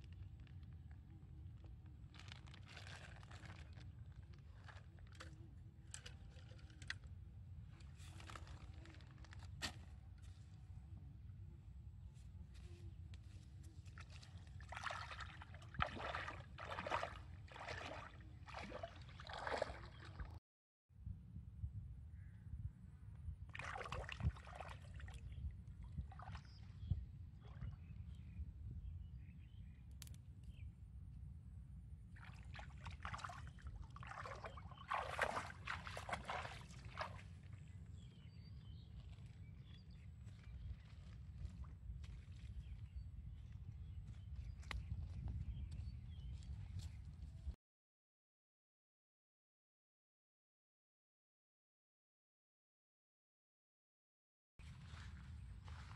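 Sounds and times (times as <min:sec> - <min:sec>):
feet splashing through water: 0:13.8 - 0:20.4, 0:23.5 - 0:25.2, 0:32.2 - 0:37.7.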